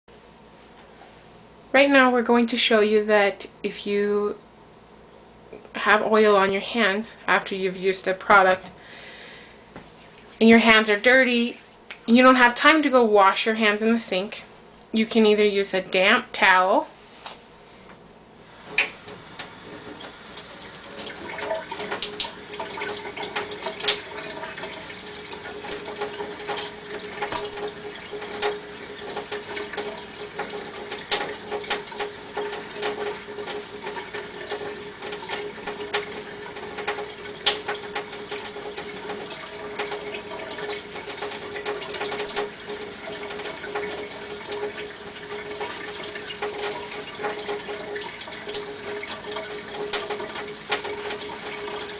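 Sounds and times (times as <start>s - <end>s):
tap running into steel sink: 25.4s - 51.9s.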